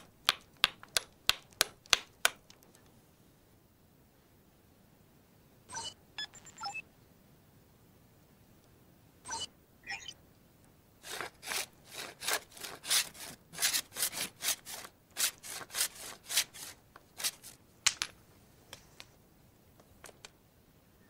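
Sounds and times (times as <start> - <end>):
stone tool scraping wooden stick: 11.0 - 17.6.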